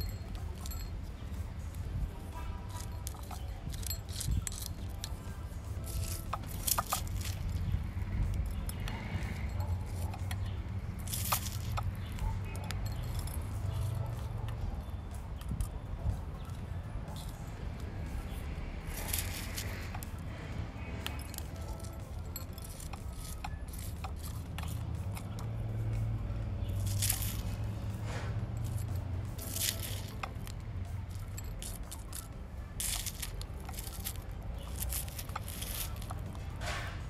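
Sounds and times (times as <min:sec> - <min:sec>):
grit clicking: 0:17.1 - 0:36.6
scoop scraping gritty soil: 0:26.7 - 0:30.6, 0:32.8 - 0:37.0.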